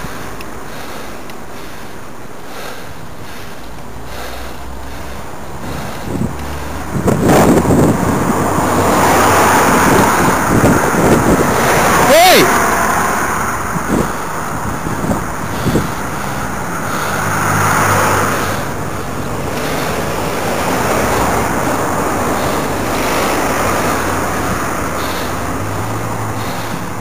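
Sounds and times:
car engines humming: 0.0 - 27.0
wind and road noise: 0.0 - 27.0.

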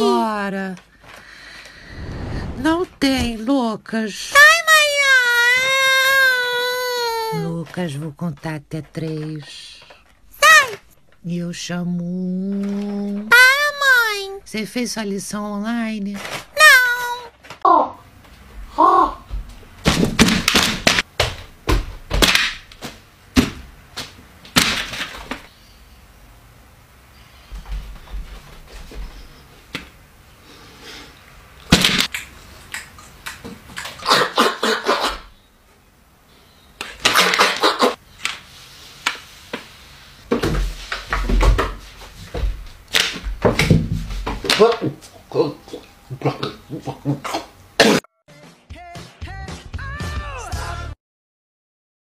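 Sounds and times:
rustling and bumping: 40.3 - 45.1.

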